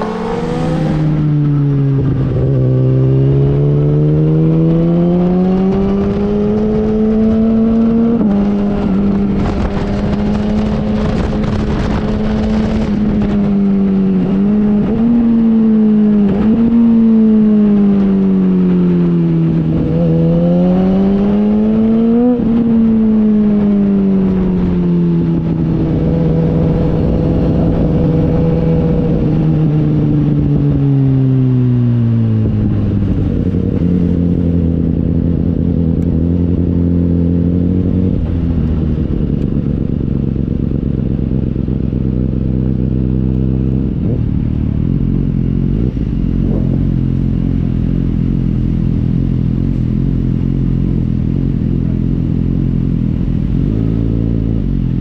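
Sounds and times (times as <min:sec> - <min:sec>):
motorcycle engine revving hard: 0:00.0 - 0:17.9.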